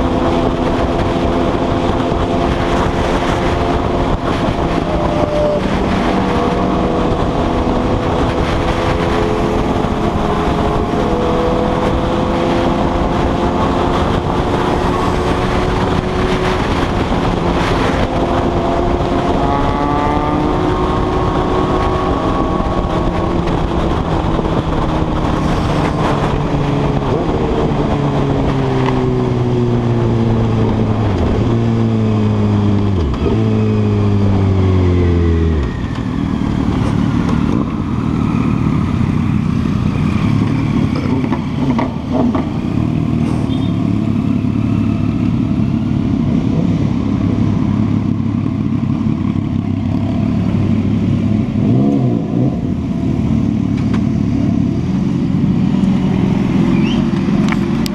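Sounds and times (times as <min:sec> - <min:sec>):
wind rush: 0:00.0 - 0:43.2.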